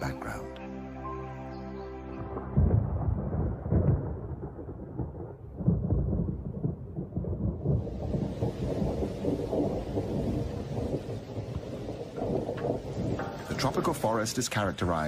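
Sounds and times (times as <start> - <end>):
rolling thunder: 2.2 - 15.0
heavy rain hissing: 7.6 - 15.0.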